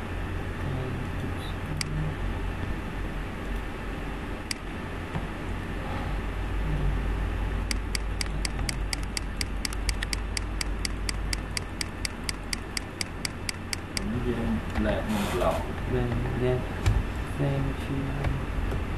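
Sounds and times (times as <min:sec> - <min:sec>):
steady low hum: 0:00.0 - 0:18.9
mouse button clicking: 0:07.7 - 0:14.1.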